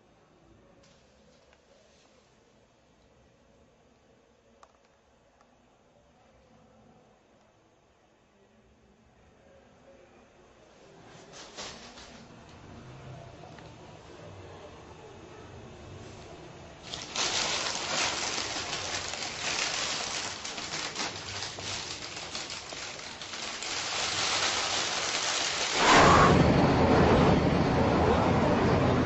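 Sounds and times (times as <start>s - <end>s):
plastic bag crinkling: 16.8s - 26.2s.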